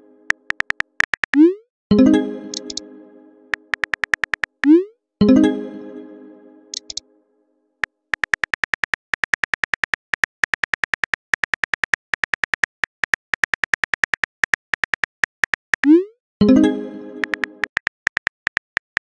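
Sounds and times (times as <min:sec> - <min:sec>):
keyboard typing taps: 0:00.3 - 0:01.5, 0:02.5 - 0:02.8, 0:03.5 - 0:04.8, 0:06.8 - 0:07.0, 0:08.1 - 0:15.9, 0:17.2 - 0:19.0.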